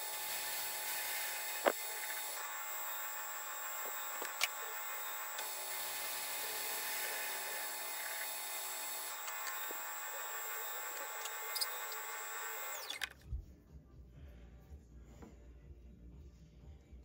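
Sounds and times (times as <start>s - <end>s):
metal lathe whining: 0.0s - 13.1s.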